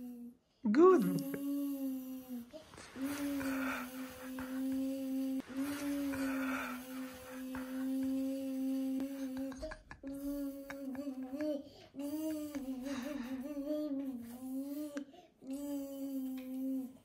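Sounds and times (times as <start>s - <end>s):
person humming: 0.0s - 17.0s
person breathing: 2.0s - 9.5s, 11.6s - 15.4s.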